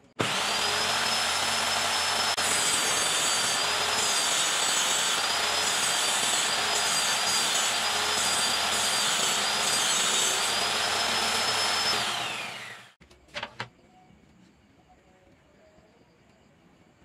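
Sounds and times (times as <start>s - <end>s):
circular saw whining: 0.0s - 13.0s.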